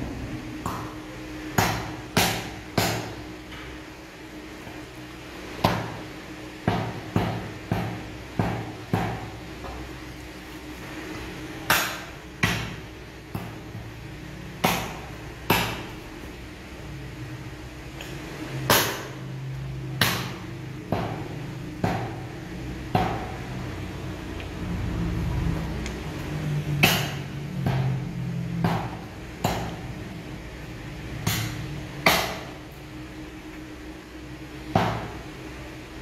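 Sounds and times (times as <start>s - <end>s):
cleaver chopping meat on block: 1.6s - 3.2s, 6.7s - 9.8s, 11.7s - 12.8s, 14.6s - 15.9s, 20.0s - 21.2s, 26.8s - 27.9s, 28.6s - 29.8s, 31.2s - 32.5s.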